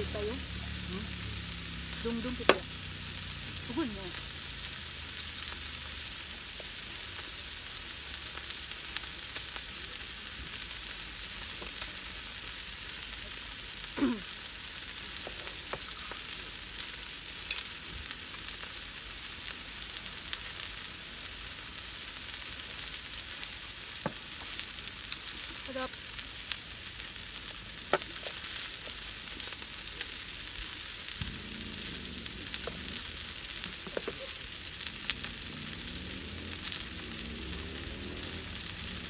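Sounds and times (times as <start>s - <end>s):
meat sizzling on grill pan: 0.0s - 39.0s.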